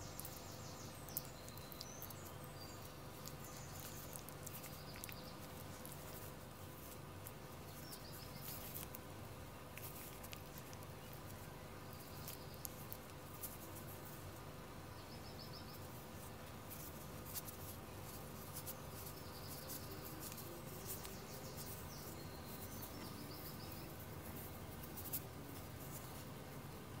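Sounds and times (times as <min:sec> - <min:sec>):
low steady hum: 0:00.0 - 0:27.0
faint high chirps: 0:18.0 - 0:25.1.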